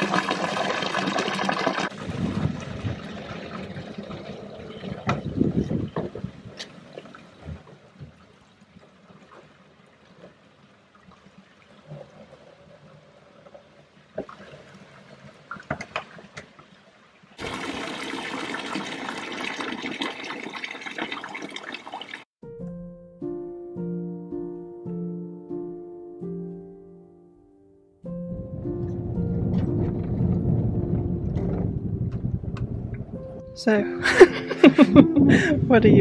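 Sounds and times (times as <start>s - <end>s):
water pouring into plastic jugs: 0.0s - 5.6s, 17.4s - 22.3s
rush of water filling: 0.0s - 8.0s, 17.4s - 22.3s
piano music: 22.4s - 36.0s.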